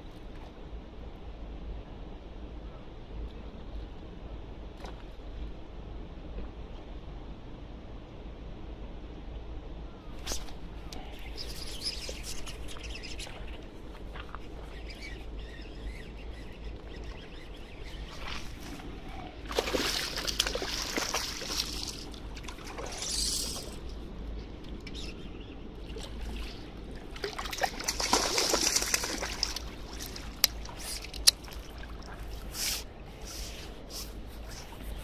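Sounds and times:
fish splashing in water: 19.5 - 23.8, 25.9 - 32.3.

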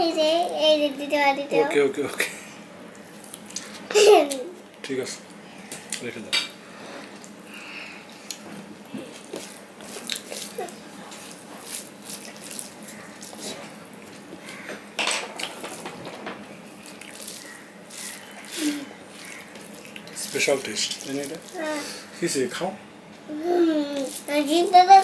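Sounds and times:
chewing and mouth smacks: 8.1 - 14.3, 16.7 - 20.2
food squished by hand: 16.8 - 21.5.

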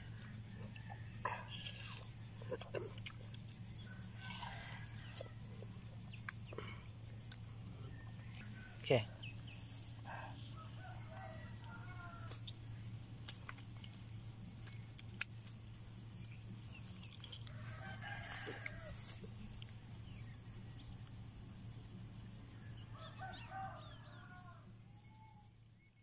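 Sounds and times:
steady low hum: 0.0 - 26.0
rooster crowing: 3.8 - 5.6, 7.8 - 9.3, 10.0 - 12.6, 17.4 - 19.3, 22.7 - 25.6.

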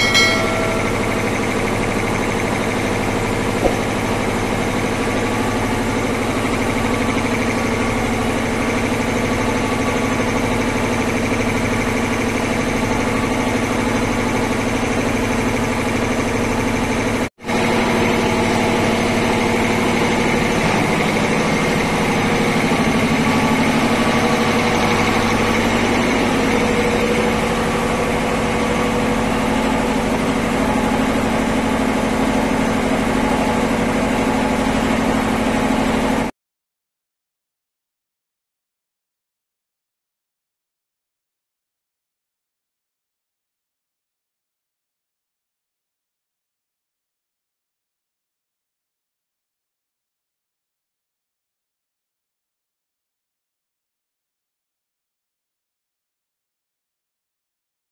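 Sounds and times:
air compressor running: 0.0 - 36.3.

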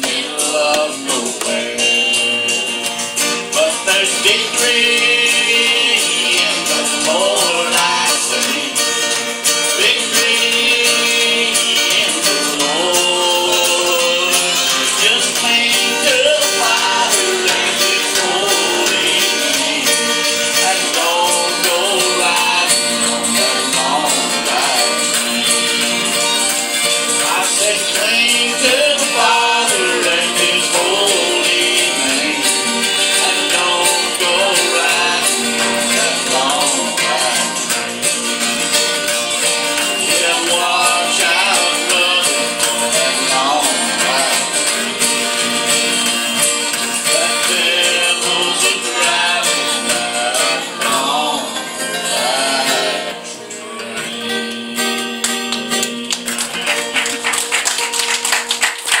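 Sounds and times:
person singing into microphone: 0.0 - 57.0
country song with guitar: 0.0 - 59.0
people clapping: 11.3 - 48.0, 54.6 - 59.0.

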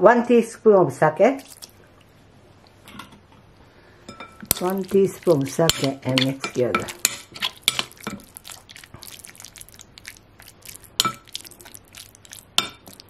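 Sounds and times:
spoon stirring wet meat: 1.4 - 1.8, 4.1 - 13.0.

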